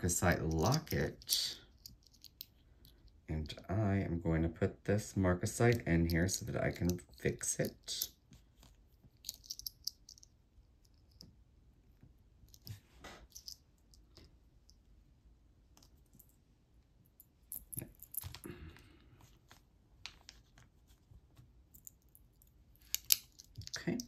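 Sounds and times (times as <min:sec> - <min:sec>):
small metal clicks and taps: 0:22.8 - 0:24.0.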